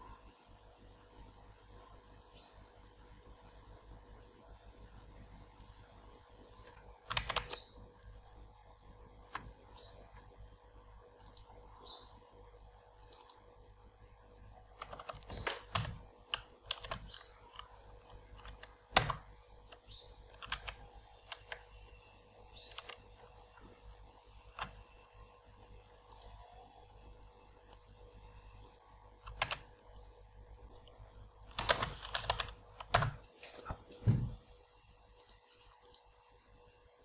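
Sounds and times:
computer keyboard typing: 6.6 - 8.5, 9.1 - 11.6, 12.9 - 13.6, 14.3 - 26.8, 29.1 - 29.7, 30.7 - 33.4, 35.2 - 36.2.

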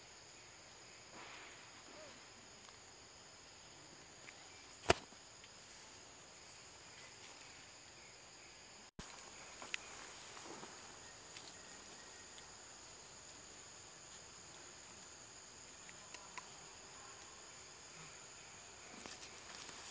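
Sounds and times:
insects buzzing: 0.0 - 19.9
sharp click: 4.8 - 5.1.

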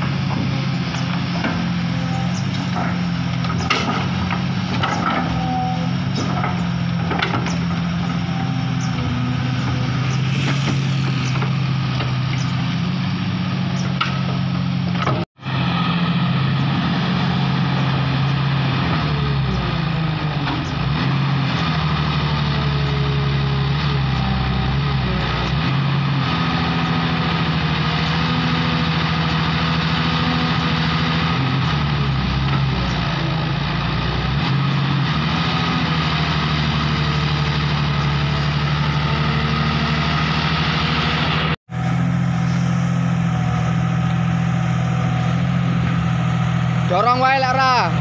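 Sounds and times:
excavator diesel engine running: 0.0 - 48.0
faint hydraulic whine: 9.6 - 12.6.

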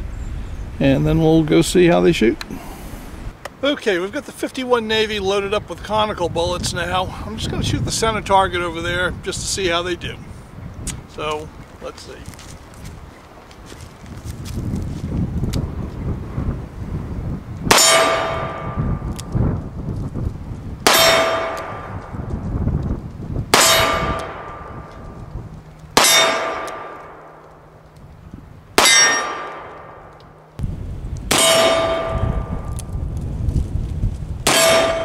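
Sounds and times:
steel target clanging: 17.7 - 18.8, 20.9 - 21.9, 23.6 - 24.7, 26.0 - 27.4, 28.8 - 30.1, 31.3 - 32.5, 34.5 - 35.0
revolver gunshots: 25.9 - 27.4, 28.8 - 30.1.

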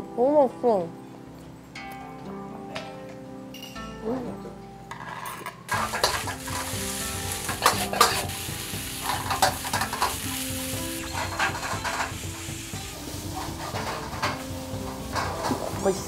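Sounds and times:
metal ladle scraping and clanking: 4.9 - 6.8, 7.4 - 8.3, 9.0 - 10.2, 11.0 - 12.2
rice sizzling in a wok: 5.7 - 16.0.

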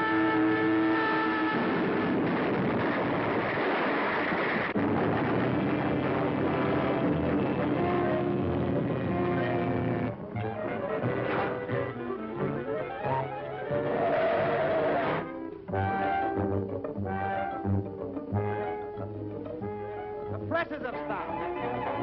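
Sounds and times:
orchestral held chords: 0.0 - 2.8, 4.8 - 22.0
rushing destruction effects: 1.3 - 10.2.

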